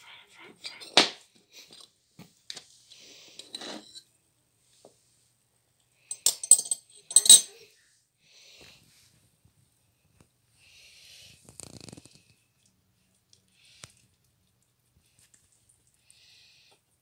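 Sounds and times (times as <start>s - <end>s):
ceramic dishes clinking: 6.1s - 7.6s.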